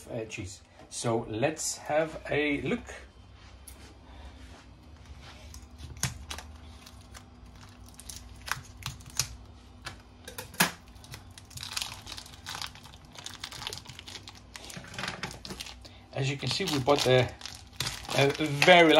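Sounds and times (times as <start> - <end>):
plastic film crinkling: 5.5 - 9.4, 10.8 - 18.9.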